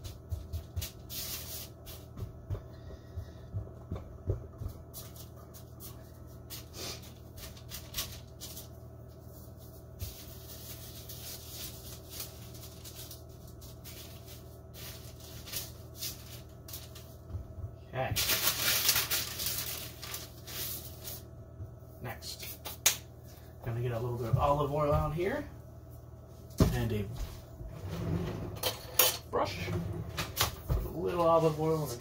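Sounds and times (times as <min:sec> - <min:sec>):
parchment paper rustling: 0:00.0 - 0:02.2, 0:04.9 - 0:21.4
steady low hum: 0:00.0 - 0:32.0.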